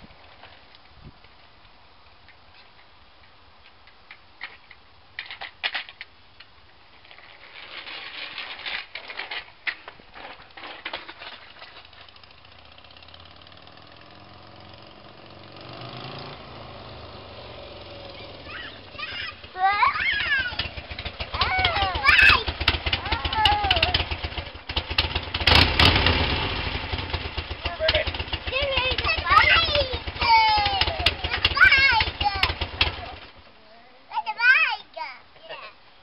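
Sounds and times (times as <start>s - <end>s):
clicks and scraping: 2.3s - 12.4s
motorcycle engine approaching: 11.2s - 33.5s.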